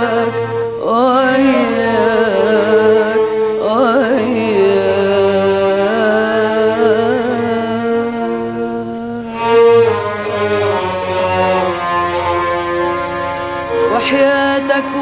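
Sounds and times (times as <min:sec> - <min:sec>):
orchestral song music: 0:08.9 - 0:15.0.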